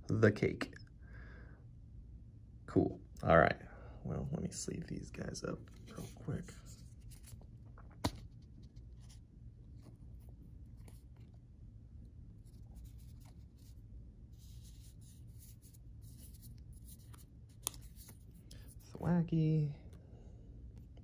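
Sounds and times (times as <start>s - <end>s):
card rustling against plastic: 5.6s - 11.4s, 12.3s - 13.8s, 14.4s - 19.0s.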